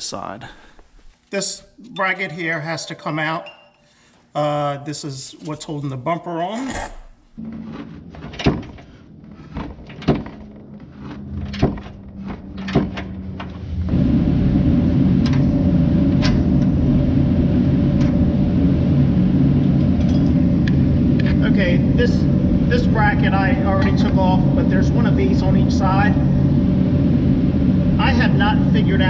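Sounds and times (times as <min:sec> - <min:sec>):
loud steady machine running: 0:07.4 - 0:29.0.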